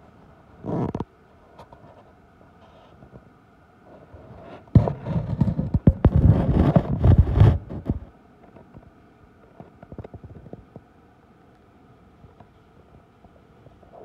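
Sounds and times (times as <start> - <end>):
phone bumping and rubbing: 4.8 - 8.1.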